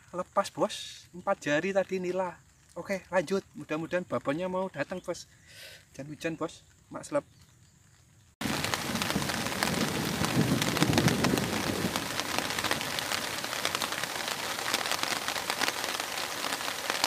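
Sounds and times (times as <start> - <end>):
heavy rain on river: 8.4 - 17.0.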